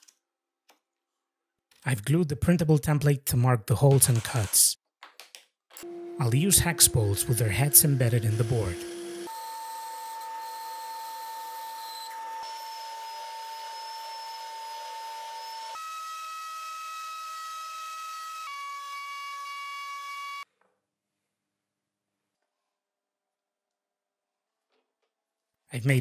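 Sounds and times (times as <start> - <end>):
sanding drum whining: 5.8 - 15.8
band saw cutting: 5.8 - 20.4
router cutting: 5.8 - 20.4.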